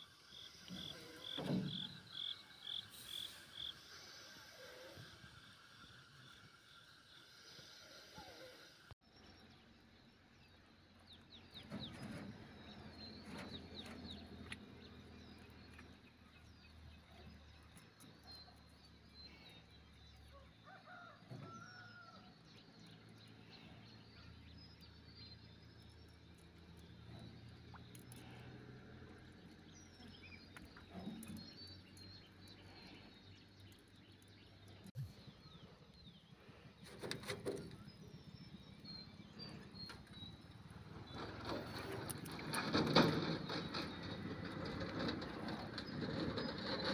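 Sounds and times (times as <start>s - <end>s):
rooster crowing: 20.3s - 22.3s
small birds chirping: 22.6s - 46.9s.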